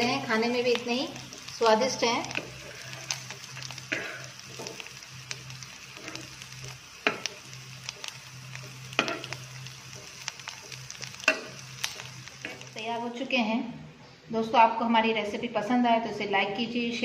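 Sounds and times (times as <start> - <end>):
food sizzling in oil: 0.0 - 13.4
spatula scraping a pan: 2.3 - 4.9.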